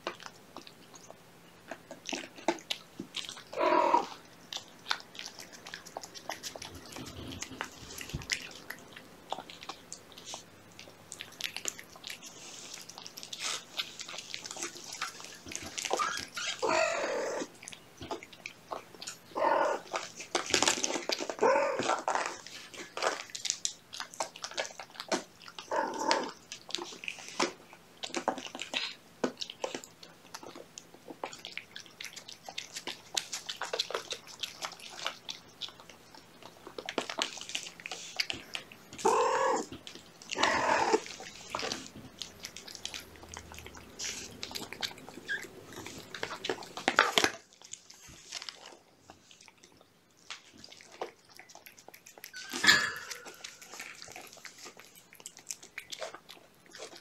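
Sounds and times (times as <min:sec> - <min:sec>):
cat chewing and licking food: 0:00.0 - 0:57.0
kittens mewing: 0:03.5 - 0:04.2, 0:39.0 - 0:39.7.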